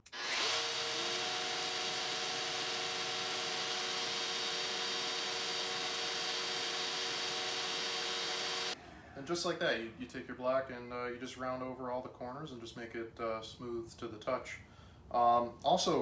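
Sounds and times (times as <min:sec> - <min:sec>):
orbital sander whining: 0:00.0 - 0:08.8.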